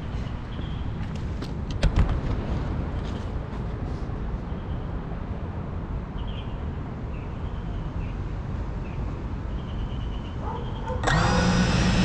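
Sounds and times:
outdoor background noise: 0.0 - 12.0
drone motors whining: 11.0 - 12.0.

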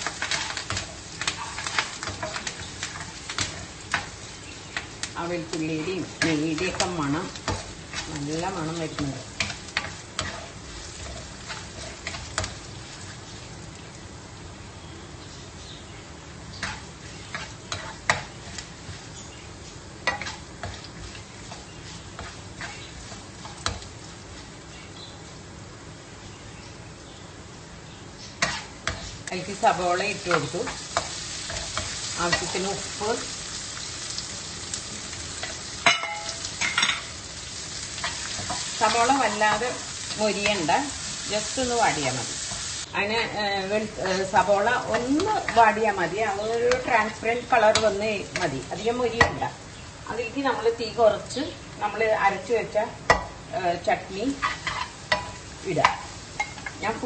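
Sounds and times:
spatula scraping and knocking pan: 0.0 - 13.4, 16.6 - 19.1, 20.0 - 24.0, 28.4 - 33.2, 54.4 - 56.8
food sizzling in frying pan: 0.0 - 57.0.

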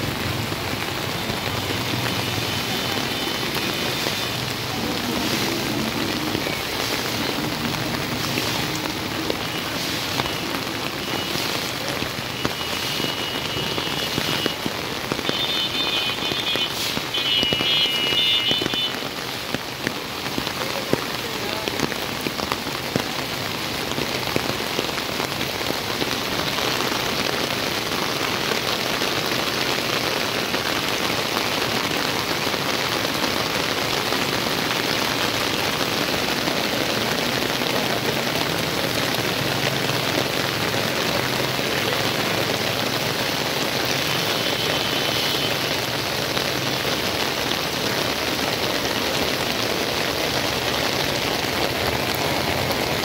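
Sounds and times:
heavy rain on standing water: 0.0 - 53.0.

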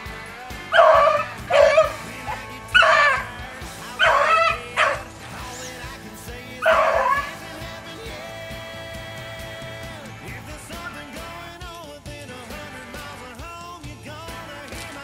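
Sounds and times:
background music: 0.0 - 15.0
dogs baying: 0.5 - 8.4.

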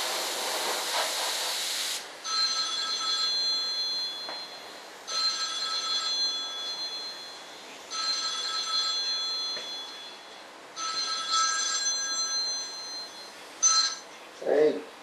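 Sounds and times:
electronic telephone ringing: 2.3 - 14.1.

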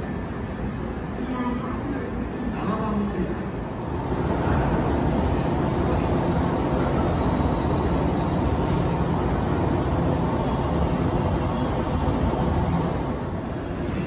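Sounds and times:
electric train idling hum: 0.0 - 14.0.

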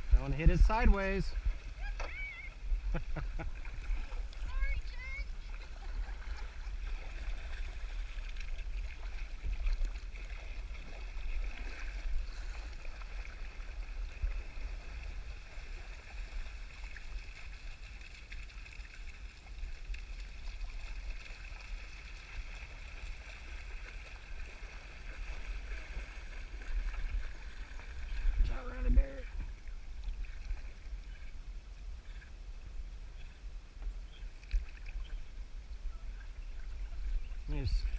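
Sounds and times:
river water gurgling: 0.0 - 37.9
dogs splashing in water: 5.0 - 29.3.

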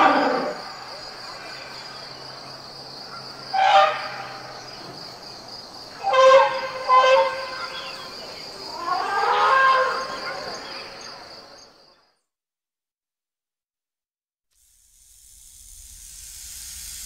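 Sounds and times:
elephants trumpeting: 0.0 - 0.7, 3.5 - 4.5, 6.0 - 8.1, 8.7 - 10.6
insects buzzing: 0.0 - 12.0, 14.6 - 17.0.

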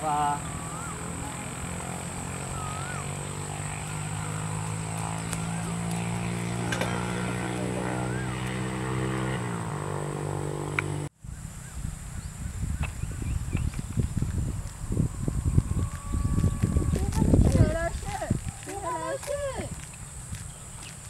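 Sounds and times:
bird chirps: 0.0 - 6.4, 11.3 - 16.8
engine drone: 0.0 - 18.2.

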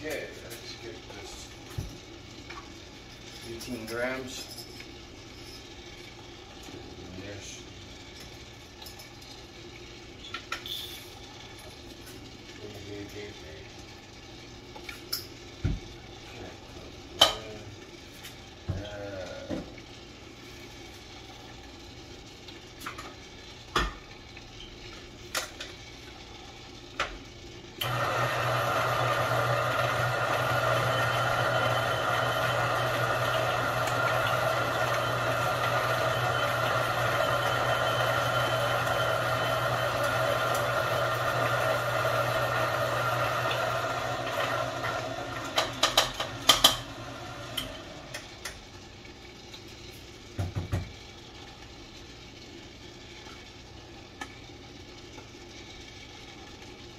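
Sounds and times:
coffee grinder motor running: 27.8 - 48.6.

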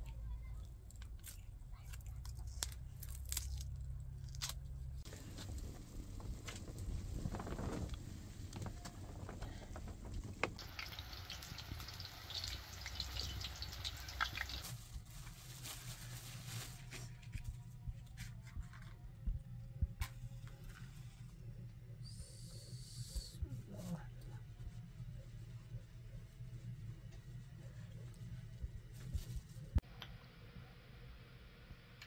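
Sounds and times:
pot sizzling and hissing: 10.6 - 14.8.

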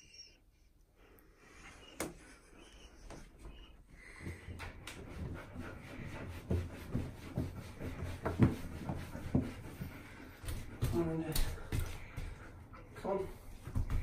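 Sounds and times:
towel rubbing wet dog fur: 4.9 - 12.3.

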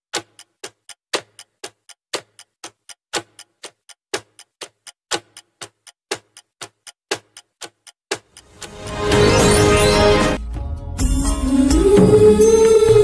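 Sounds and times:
clock ticking: 0.1 - 10.0.

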